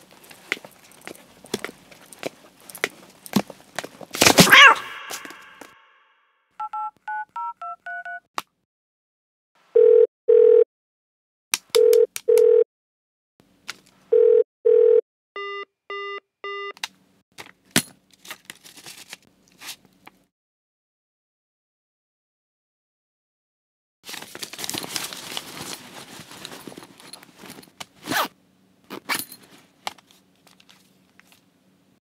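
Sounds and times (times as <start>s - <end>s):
phone keypad beeps: 6.6s - 8.2s, 14.2s - 16.8s
phone ringback tones: 9.8s - 10.6s, 14.1s - 16.7s.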